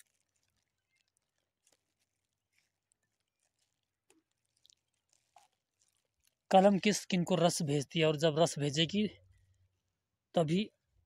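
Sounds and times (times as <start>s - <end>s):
grafting tape rustling: 0.0s - 6.5s.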